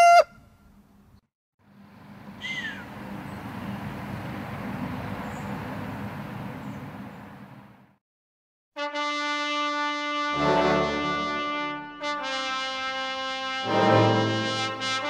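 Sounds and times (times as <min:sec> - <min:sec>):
faint high bird chirps: 0:02.4 - 0:03.4.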